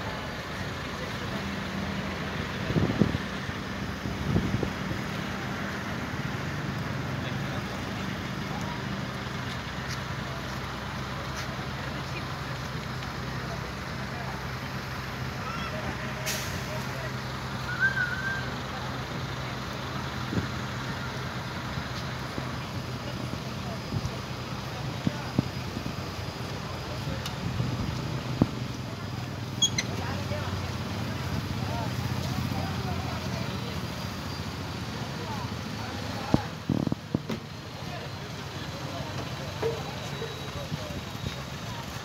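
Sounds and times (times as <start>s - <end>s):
engine humming: 0.0s - 42.0s
wind noise: 4.0s - 5.0s, 36.6s - 37.2s
high wavering whistle: 17.6s - 18.5s.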